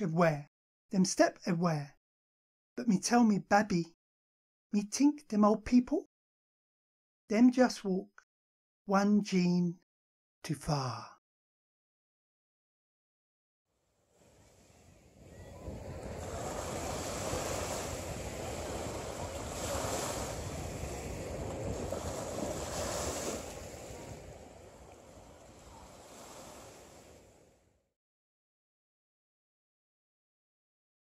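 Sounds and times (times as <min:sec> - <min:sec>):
surf washing over sand: 0:14.1 - 0:27.7.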